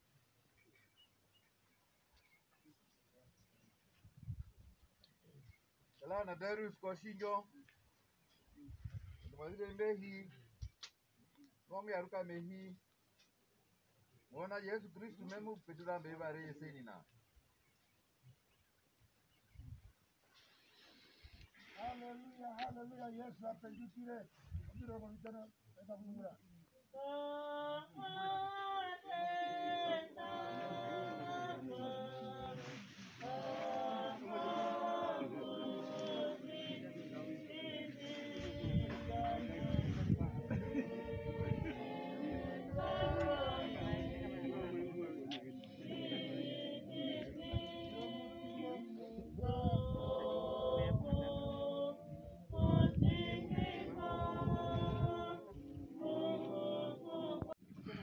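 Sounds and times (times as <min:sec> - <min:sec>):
group singing unaccompanied: 0:27.0 - 0:57.6.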